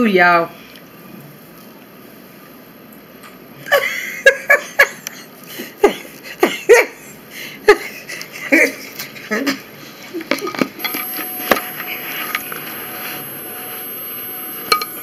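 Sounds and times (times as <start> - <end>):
person laughing in bursts: 3.7 - 7.1.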